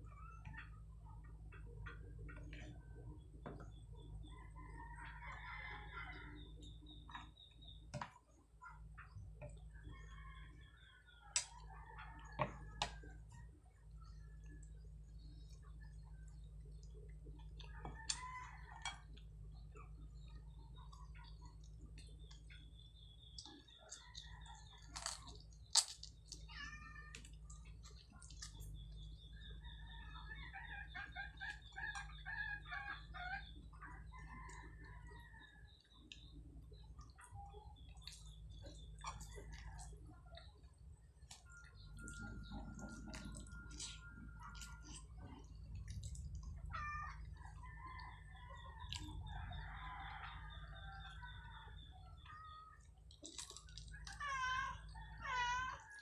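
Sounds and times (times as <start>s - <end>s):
steady low hum: 0.0s - 54.1s
chickens calling and clucking: 0.0s - 56.0s
chicken calls: 28.8s - 56.0s.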